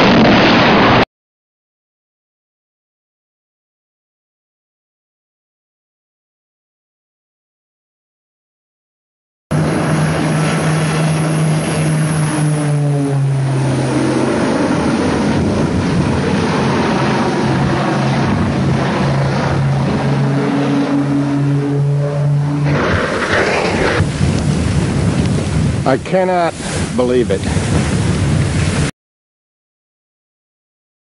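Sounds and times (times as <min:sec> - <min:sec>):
propeller aircraft engines droning: 0:09.5 - 0:28.9.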